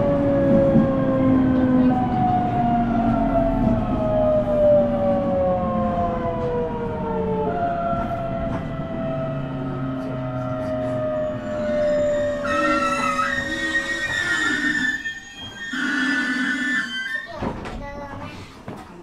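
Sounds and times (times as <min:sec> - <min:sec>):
electric train motor whining: 0:08.0 - 0:17.2.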